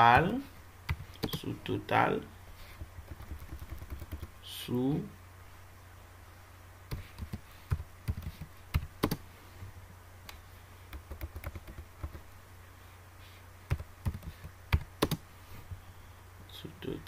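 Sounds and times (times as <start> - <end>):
low steady hum: 0.0 - 17.0
keyboard typing clicks: 6.9 - 9.2, 13.7 - 15.2.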